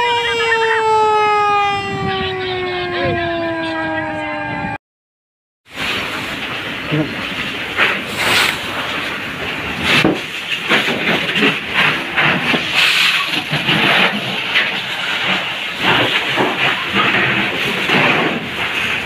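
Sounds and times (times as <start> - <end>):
fire hose spraying water: 5.7 - 19.0.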